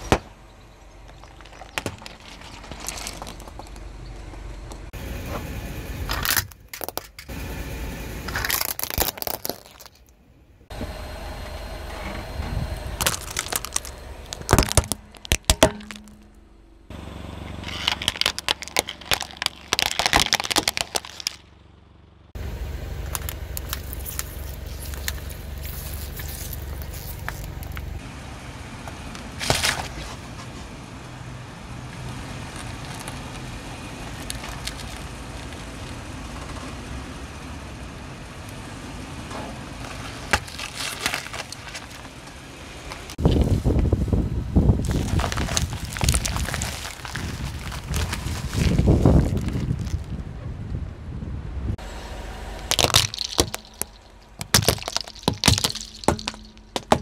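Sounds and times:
car running noise: 0.0 - 57.0
tyre crushing plastic: 8.3 - 10.1, 13.0 - 16.3, 17.6 - 21.5, 39.8 - 42.1, 44.8 - 50.1, 52.6 - 57.0.

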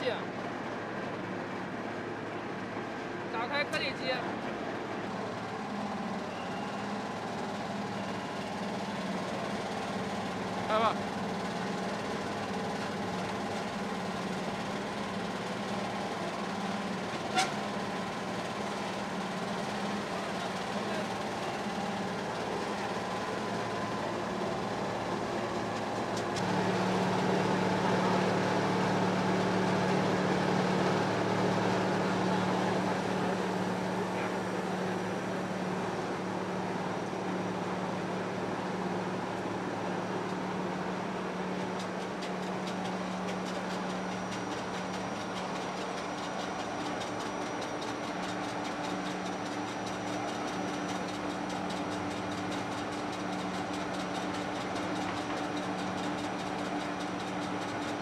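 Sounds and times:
mixer and screw conveyors: 40.2 - 58.0.

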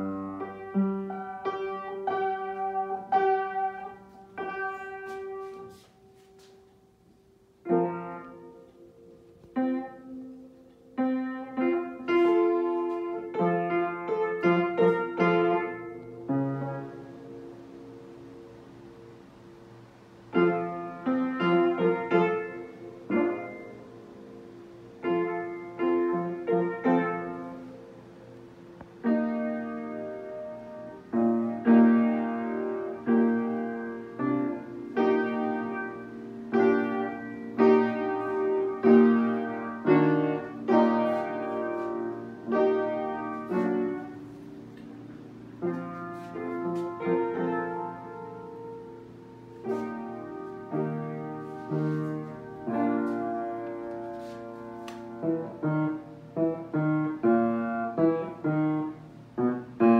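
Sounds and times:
solo piano music: 0.0 - 59.9.

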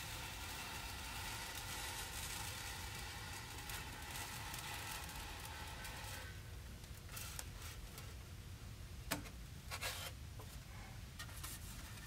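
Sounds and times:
foam sheet rustling and scraping: 0.0 - 6.4, 7.0 - 8.2, 9.7 - 10.2, 11.2 - 12.0.

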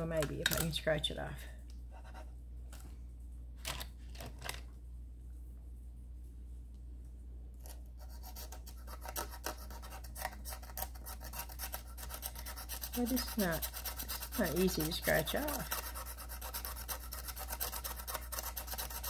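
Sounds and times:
scratching scratch-off card: 7.6 - 19.0.

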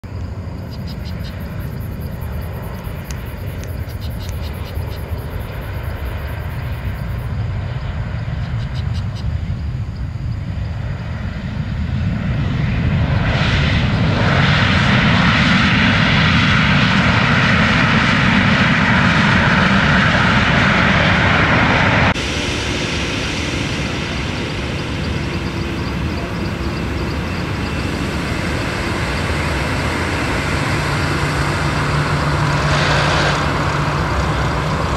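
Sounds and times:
jet engines rumbling: 0.0 - 34.9
jet reverse thrust roar: 0.1 - 34.9.

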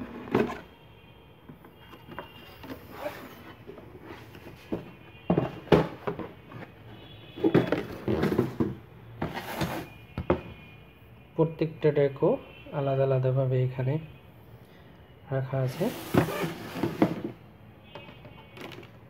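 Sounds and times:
cardboard packaging being handled: 7.4 - 10.0, 15.6 - 17.4
short knocks and scrapes: 15.8 - 17.4.

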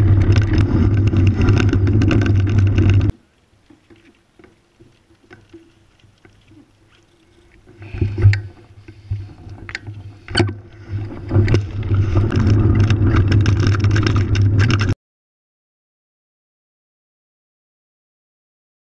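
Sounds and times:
bike rattling with sharp knocks: 0.0 - 3.1, 7.8 - 15.0
tyres rumbling on gravel: 0.0 - 3.2, 3.8 - 15.0.

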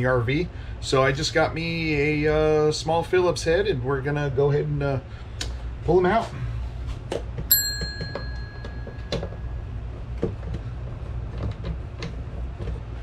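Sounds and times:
metallic clink ringing: 7.5 - 9.4.

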